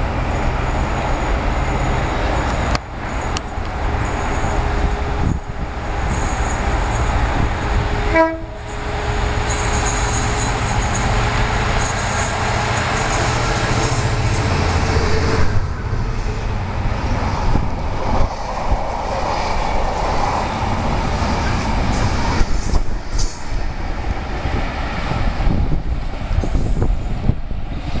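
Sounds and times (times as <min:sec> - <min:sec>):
diesel locomotive engine hum: 0:00.0 - 0:28.0
heavy rail rumble: 0:00.0 - 0:28.0.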